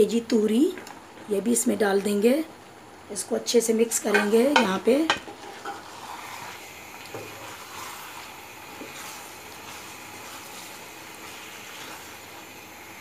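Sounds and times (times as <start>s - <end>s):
food sizzling in a pan: 3.2s - 13.0s.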